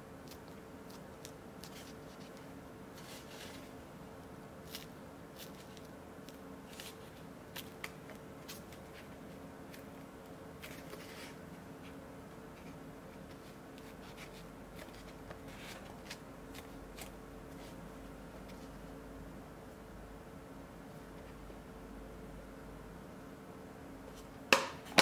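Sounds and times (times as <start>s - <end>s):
faint steady hum: 0.0s - 25.0s.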